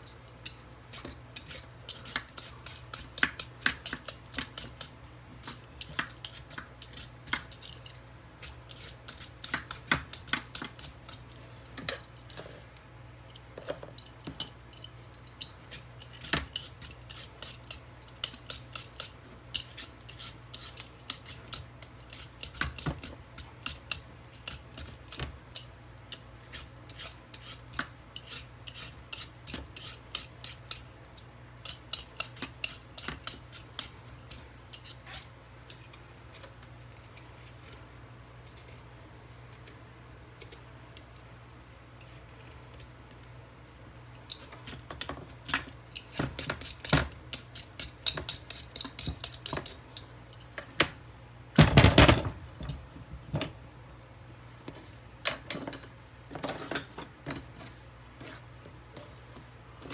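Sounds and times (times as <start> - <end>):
vegetable peeler scraping squash: 0.9 - 7.7, 8.4 - 11.9, 15.6 - 30.8, 31.6 - 38.9, 45.9 - 50.0.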